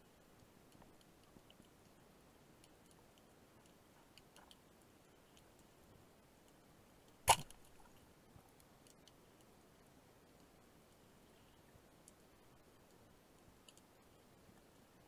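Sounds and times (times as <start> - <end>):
speargun shot underwater: 7.3 - 7.7.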